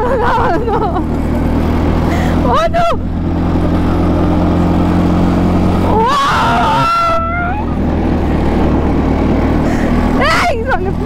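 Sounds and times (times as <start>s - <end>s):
go-kart engine running: 0.0s - 11.0s
high-pitched cry of excitement: 5.9s - 7.8s.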